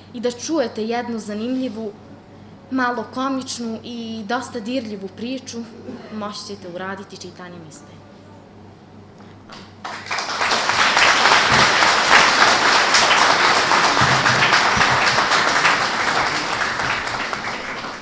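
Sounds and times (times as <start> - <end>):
audience clapping: 9.5 - 18.0.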